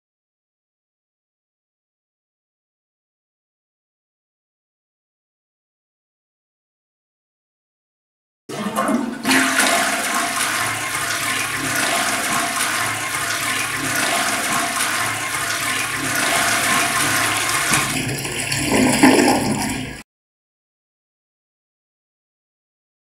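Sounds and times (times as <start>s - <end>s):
toilet flushing: 8.5s - 20.0s.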